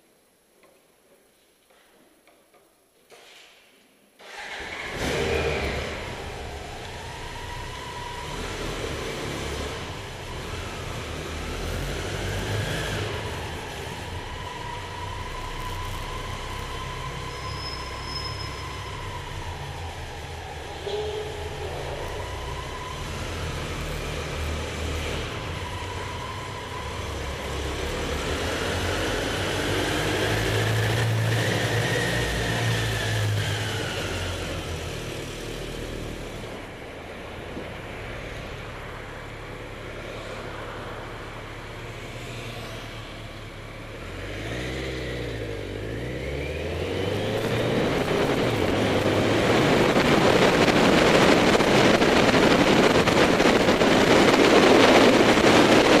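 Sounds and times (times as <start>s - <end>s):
motorcycle engine accelerating: 22.0s - 36.8s, 41.9s - 56.0s
rushing air noise: 47.0s - 56.0s.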